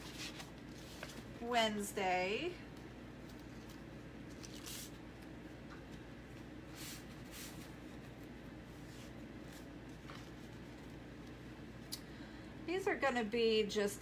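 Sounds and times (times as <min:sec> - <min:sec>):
steady low hum: 0:00.0 - 0:14.0
plastic sheet rustling: 0:03.4 - 0:05.0.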